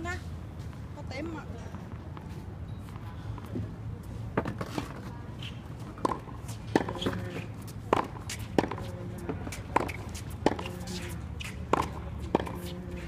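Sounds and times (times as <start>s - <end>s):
tennis balls struck by rackets: 4.3s - 13.0s
tennis balls bouncing on hard court: 5.8s - 13.0s.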